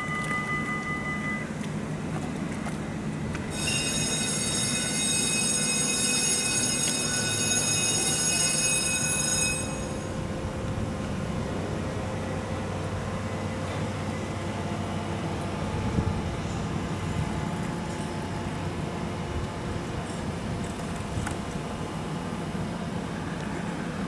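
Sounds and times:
railway wheels squealing: 0.0 - 1.6, 3.5 - 10.3.

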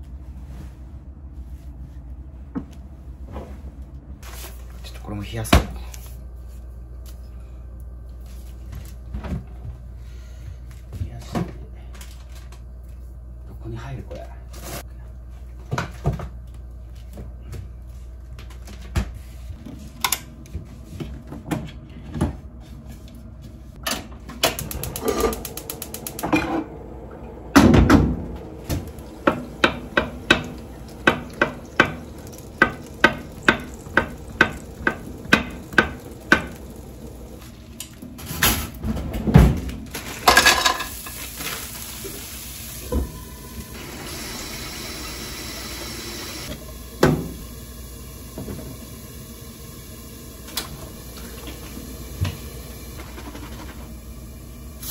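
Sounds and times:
kitchen clatter: 28.7 - 41.7.

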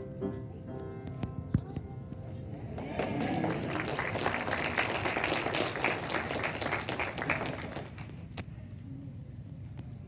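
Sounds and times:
audience applauding: 2.5 - 8.2.

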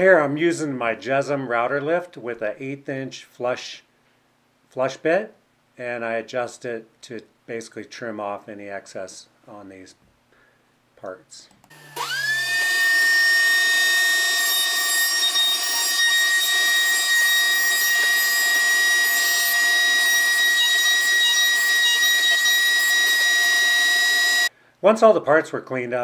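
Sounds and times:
router whining: 11.6 - 24.5.

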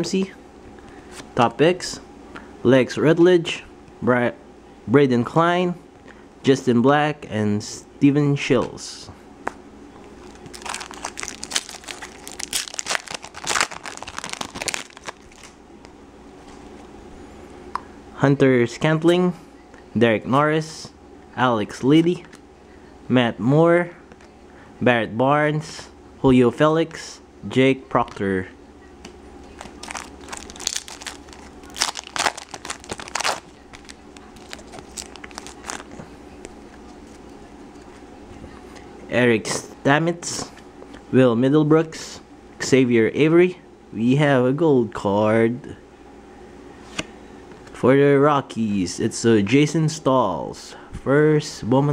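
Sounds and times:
foil wrapper crinkling and tearing: 10.2 - 15.6, 29.6 - 36.0.

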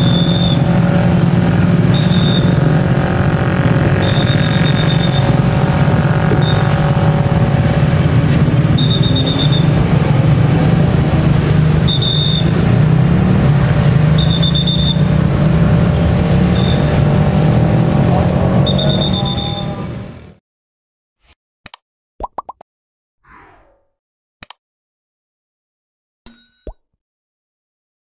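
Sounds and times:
motorcycle engines rumbling: 0.0 - 20.4
road traffic: 0.0 - 20.4
short high beep: 4.0 - 5.3.

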